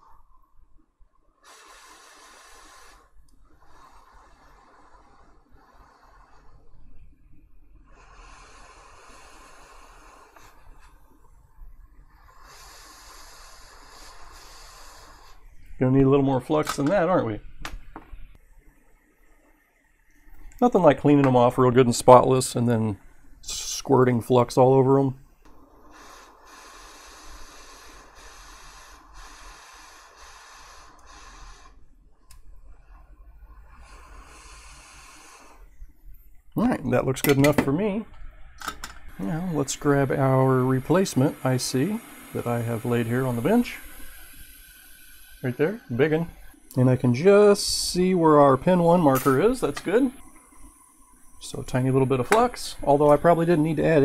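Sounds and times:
flux sizzling under soldering tip: 0:01.4 - 0:06.8, 0:07.9 - 0:11.2, 0:12.0 - 0:15.7, 0:25.7 - 0:35.9, 0:38.9 - 0:54.0.

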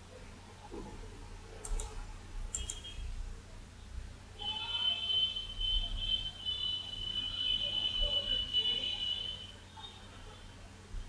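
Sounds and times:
faint clicks: 0:01.6 - 0:02.8
high-pitched electronic alarm tone: 0:04.4 - 0:09.6.

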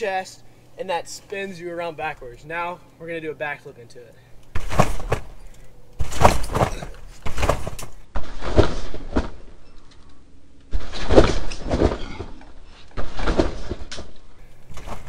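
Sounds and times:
trampoline mat and springs bouncing: 0:04.5 - 0:15.0.

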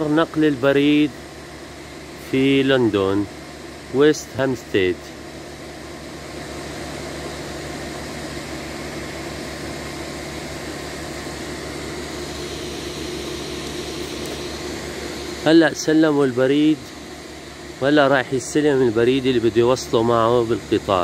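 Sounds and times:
locomotive engine idling: 0:00.0 - 0:21.0.

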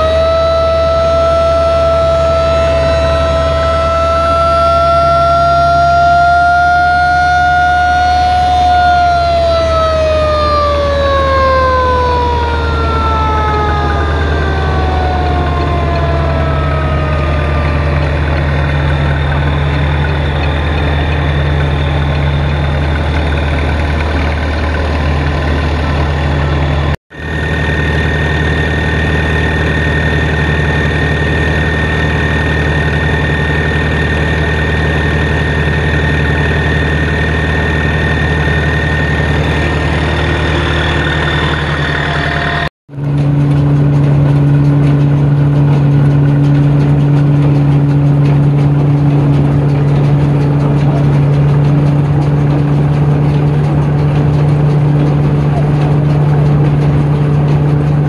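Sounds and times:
mechanical siren winding down: 0:00.0 - 0:58.0
tractor engine running: 0:00.0 - 0:58.0
thin high whine: 0:25.1 - 0:42.7.

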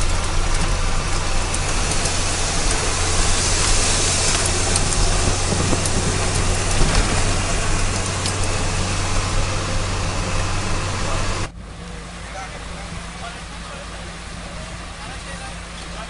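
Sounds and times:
tyre and wind noise: 0:00.0 - 0:11.5
diesel engine hum in cab: 0:00.0 - 0:16.0.

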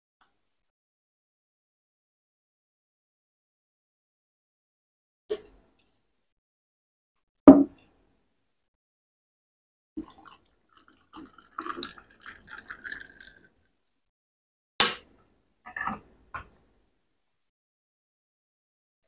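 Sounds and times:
person gulping: 0:10.0 - 0:13.5
water pouring into glass with ice: 0:10.0 - 0:13.6.

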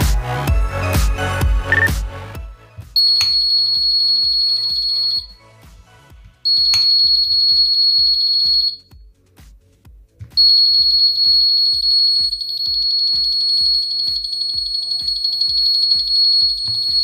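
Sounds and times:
doorbell buzzer beeping: 0:03.0 - 0:05.3, 0:06.5 - 0:08.8, 0:10.4 - 0:17.0
soft electronic beat: 0:03.0 - 0:05.3, 0:06.4 - 0:17.0.

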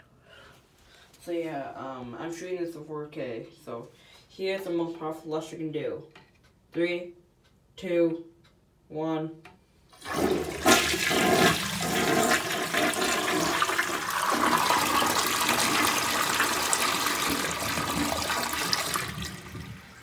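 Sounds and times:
toilet flushing: 0:10.0 - 0:20.0.

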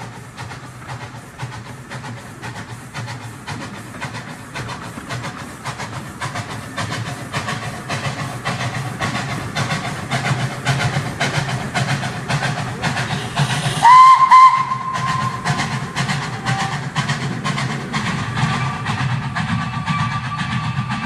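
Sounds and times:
model train motor hum: 0:00.0 - 0:21.0
wheels clicking over rail joints: 0:00.0 - 0:21.0
locomotive whistle toots: 0:11.9 - 0:17.2, 0:18.1 - 0:21.0.

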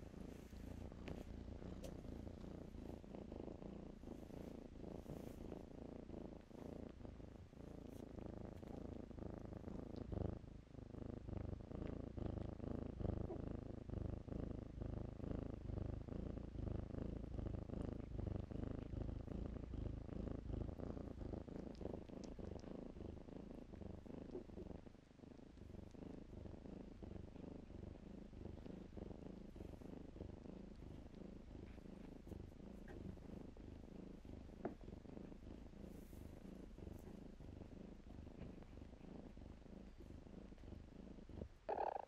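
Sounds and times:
kitten purring: 0:00.0 - 0:42.0.

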